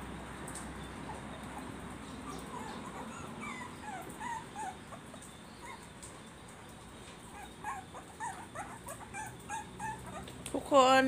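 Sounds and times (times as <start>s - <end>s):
puppy whimpering: 1.1s - 6.0s, 7.2s - 10.6s.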